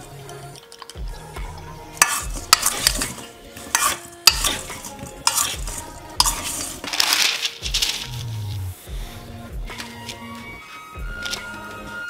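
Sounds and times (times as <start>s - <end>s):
metal spoon scraping steel bowl: 1.9s - 8.2s
potato pieces tumbling: 3.8s - 8.6s.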